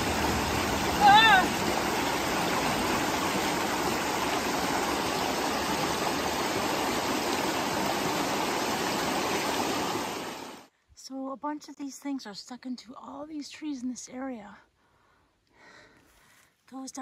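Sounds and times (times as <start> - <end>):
stream rushing over stones: 0.0 - 10.7.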